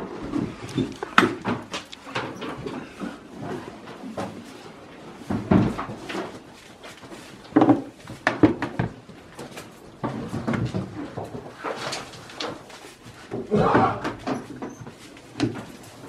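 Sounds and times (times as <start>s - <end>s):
goats bumping wooden wall: 0.1s - 4.4s, 7.5s - 12.6s, 13.2s - 16.0s.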